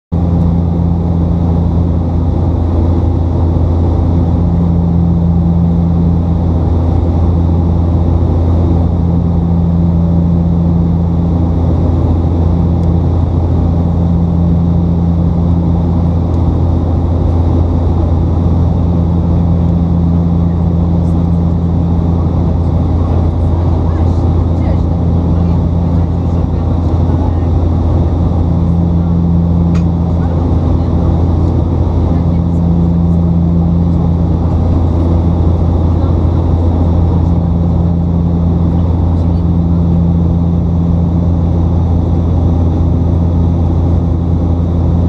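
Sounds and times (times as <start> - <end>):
deep steady hum: 0.1 - 45.0
turboprop engines droning: 0.1 - 45.0
higher pulsing tone: 4.1 - 8.2, 18.3 - 41.7.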